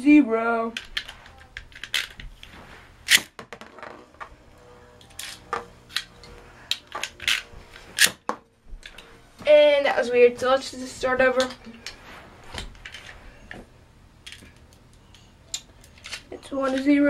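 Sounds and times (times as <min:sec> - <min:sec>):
spinning top whir: 0:03.0 - 0:08.2.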